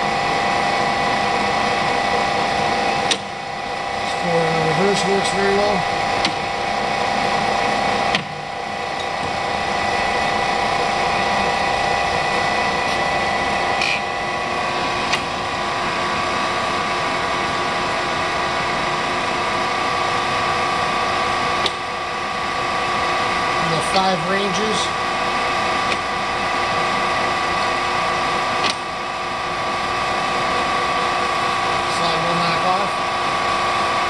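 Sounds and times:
lathe machine whine: 0.0 - 34.0
lathe gear click: 3.0 - 3.3, 6.2 - 6.4, 25.8 - 26.1, 28.6 - 28.9.

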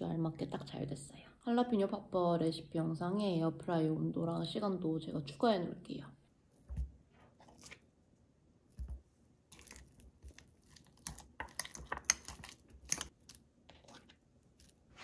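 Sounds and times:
spoon mashing avocado in glass bowl: 8.8 - 15.0.

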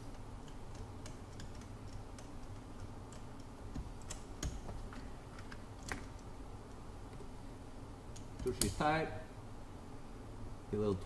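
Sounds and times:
low steady hum: 0.0 - 11.0
hand tools clicking and tapping: 0.1 - 6.2.

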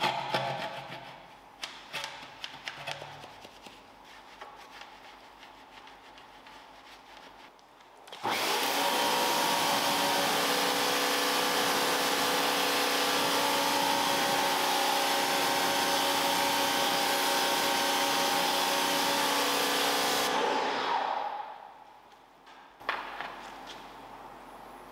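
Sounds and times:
vacuum cleaner motor whine: 8.1 - 21.4.

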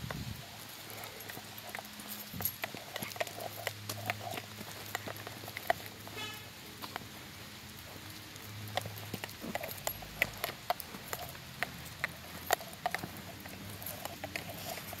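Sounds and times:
dog claws pattering on pavement: 0.0 - 15.0
footsteps: 0.0 - 15.0.

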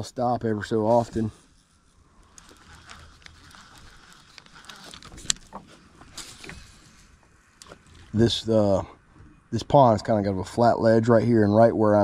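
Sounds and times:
fishing reel clicks and rubbing: 2.2 - 6.8.

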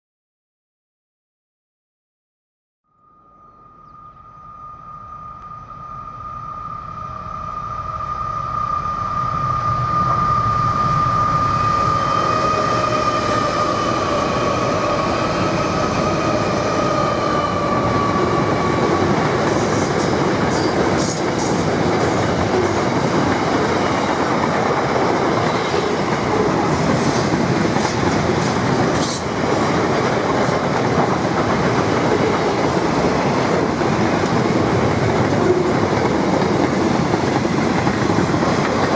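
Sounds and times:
high whine: 2.9 - 26.9
diesel locomotives passing: 3.6 - 38.9.

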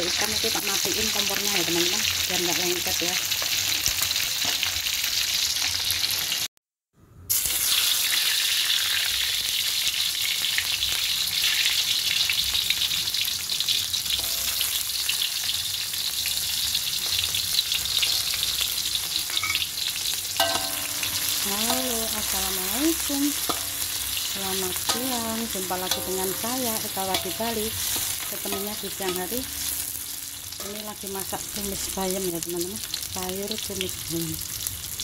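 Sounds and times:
oil sizzling and crackling: 0.0 - 6.5, 7.3 - 35.0
spatula stirring in a wok: 20.4 - 31.3.

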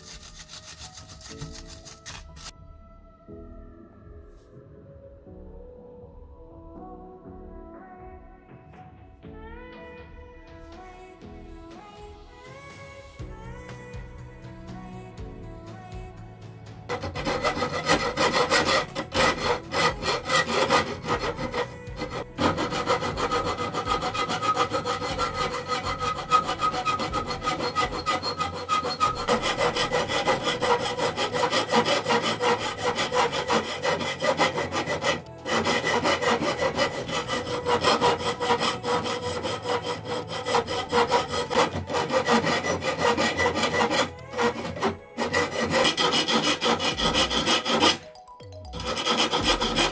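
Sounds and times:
file scraping rusted iron: 0.0 - 2.5, 16.9 - 48.1, 48.8 - 49.9.

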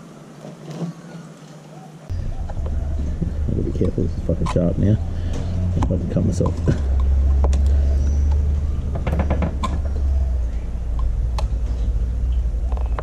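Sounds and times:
steady low rumble: 2.1 - 13.0
hand tools clicking and scraping: 3.7 - 11.9.

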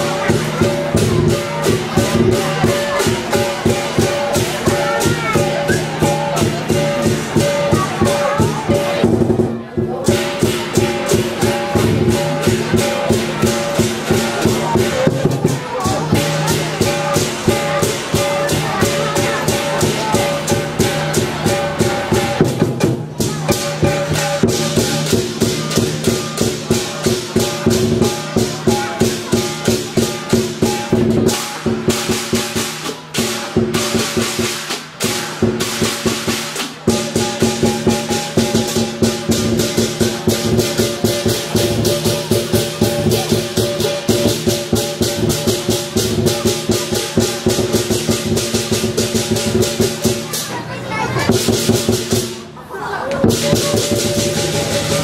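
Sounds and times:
cymbals clashing: 0.0 - 52.5, 53.2 - 55.0
big drum beating: 0.0 - 55.0.

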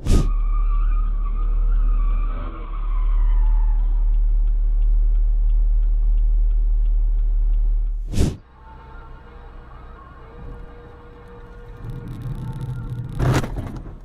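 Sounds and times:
road traffic rumble: 0.0 - 14.0
high vehicle squeal: 0.1 - 4.1, 8.6 - 13.6.

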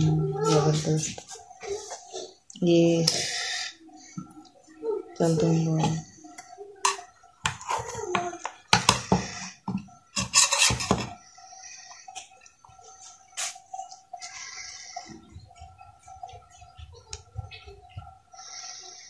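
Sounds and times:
knife scraping metal tray: 10.2 - 11.2.

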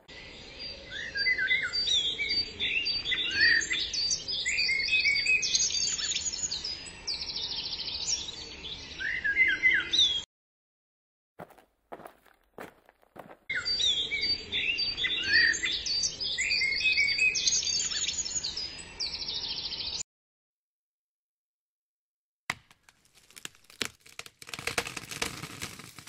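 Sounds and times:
songbirds chirping and singing: 0.1 - 10.3, 13.5 - 20.0
dry crackling and rustling: 22.5 - 26.0.

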